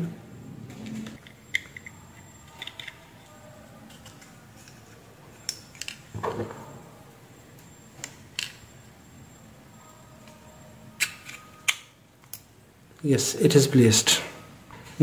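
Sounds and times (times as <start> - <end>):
small parts clicking and tapping: 1.0 - 6.1.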